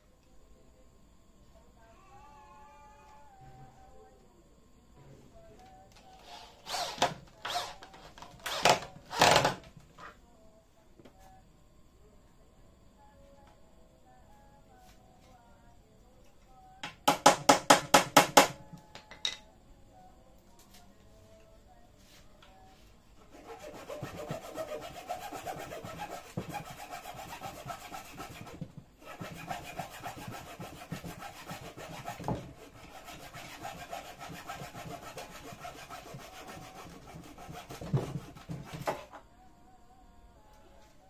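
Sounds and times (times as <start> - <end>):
hand saw cutting wood: 23.3 - 39.0.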